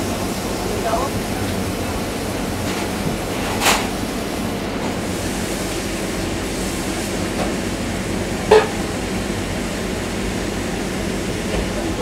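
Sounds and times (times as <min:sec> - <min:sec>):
sharp clunk: 0:08.5 - 0:08.8.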